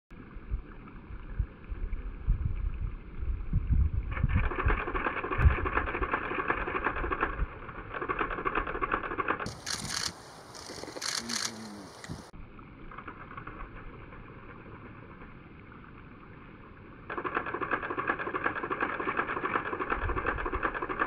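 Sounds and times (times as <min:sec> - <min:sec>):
wind buffeting microphone: 0:01.4 - 0:06.1, 0:09.5 - 0:11.1, 0:11.8 - 0:12.3
river water running: 0:09.4 - 0:20.0.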